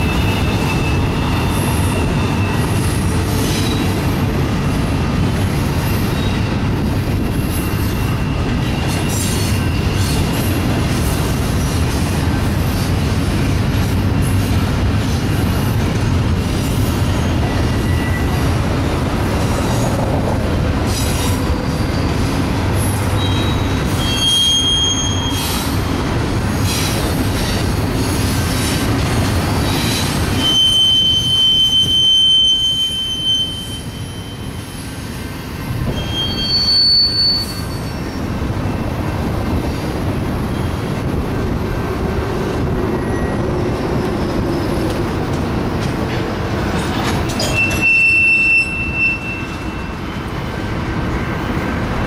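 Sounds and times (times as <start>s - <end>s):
high-pitched steel wheel squeals: 0.0s - 4.0s, 17.1s - 18.5s, 23.1s - 25.8s, 29.7s - 34.9s, 35.9s - 38.3s, 43.0s - 43.6s, 47.3s - 50.2s
train wheels rumbling on rail: 0.0s - 52.0s.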